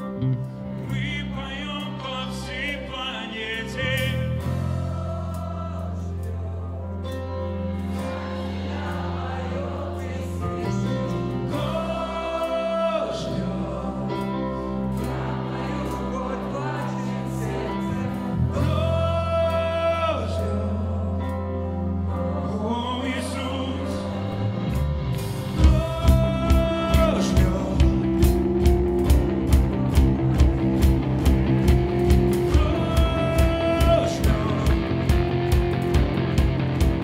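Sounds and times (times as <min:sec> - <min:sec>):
man singing: 0:00.7 - 0:06.2, 0:10.0 - 0:14.6, 0:15.9 - 0:24.8, 0:25.5 - 0:29.6, 0:31.7 - 0:35.6
live band playing: 0:03.3 - 0:19.8, 0:21.7 - 0:37.0.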